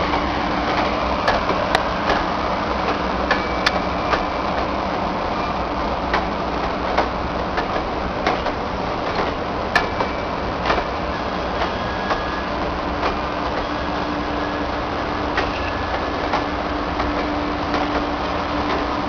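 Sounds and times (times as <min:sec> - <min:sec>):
train coaches rumbling on track: 0:00.0 - 0:19.0
high-pitched wheel squeals: 0:11.1 - 0:12.6, 0:13.5 - 0:16.2.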